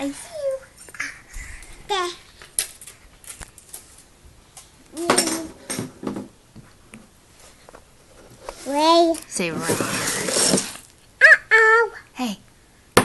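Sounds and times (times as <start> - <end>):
toddler vocal sound: 4.9 - 5.7.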